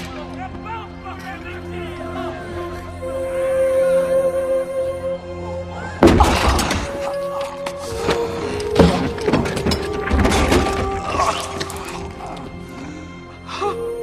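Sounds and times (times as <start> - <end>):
dramatic film score: 0.0 - 14.0
heavy wooden crash and thuds: 6.0 - 7.1, 8.0 - 11.9.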